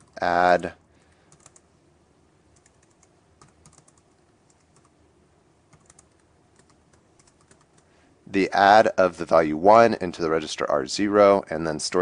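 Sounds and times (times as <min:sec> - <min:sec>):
faint keyboard typing: 0:00.0 - 0:01.7, 0:02.5 - 0:05.0, 0:05.7 - 0:08.0.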